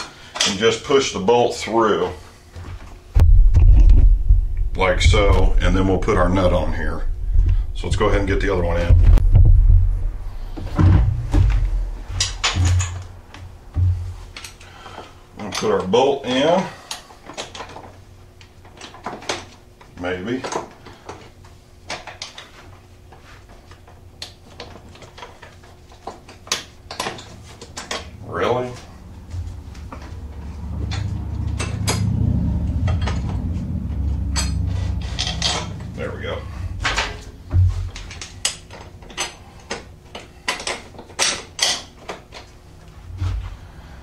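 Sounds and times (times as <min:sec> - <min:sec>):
sharp metal knocks: 0:03.2 - 0:09.9, 0:10.6 - 0:14.2.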